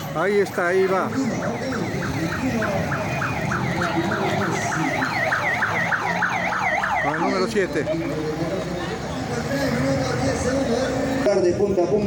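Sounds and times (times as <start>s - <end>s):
electronic siren yelping: 0.4s - 7.6s.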